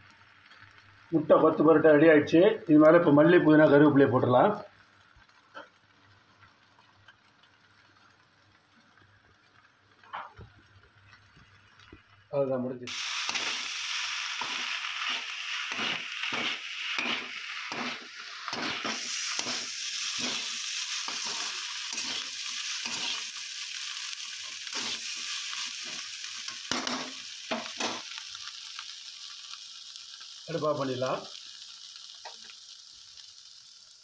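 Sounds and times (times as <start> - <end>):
food sizzling in a pan: 0.0 - 34.0
metal ladle scraping a pan: 14.4 - 23.2.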